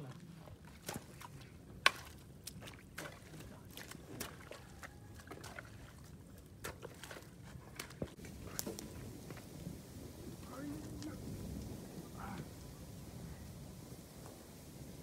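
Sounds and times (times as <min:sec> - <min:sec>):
hoe chopping through wet mud: 0:00.6 - 0:08.8.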